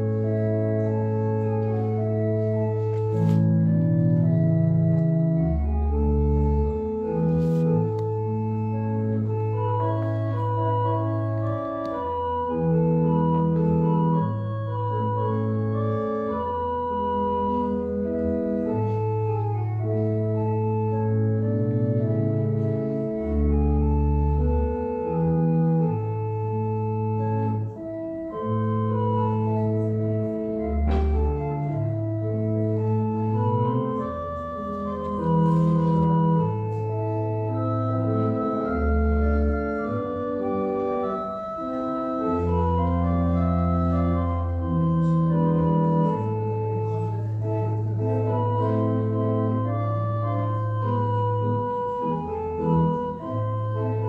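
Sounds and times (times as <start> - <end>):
slow organ music: 0.0 - 54.0.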